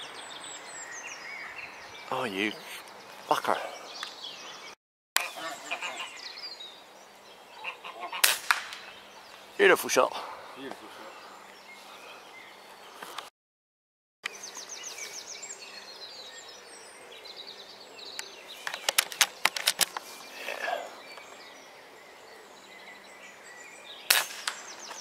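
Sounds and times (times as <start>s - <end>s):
birds chirping: 0.0s - 13.3s, 14.2s - 25.0s
fast rattling bird call: 7.6s - 8.9s
sharp clicks: 18.2s - 20.1s.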